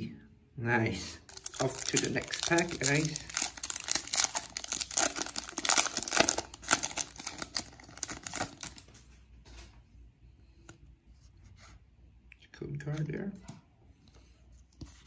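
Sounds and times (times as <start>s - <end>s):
foil wrapper crinkling and tearing: 1.3s - 8.9s.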